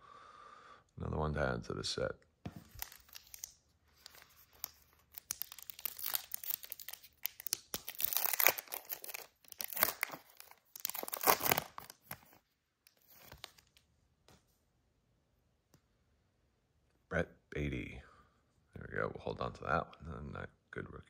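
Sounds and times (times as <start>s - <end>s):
card pack wrapper tearing and crinkling: 2.6s - 13.8s.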